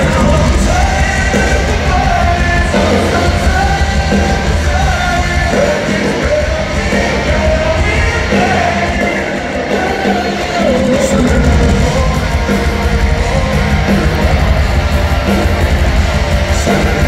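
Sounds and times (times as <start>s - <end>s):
distant live rock band: 0.0s - 17.0s.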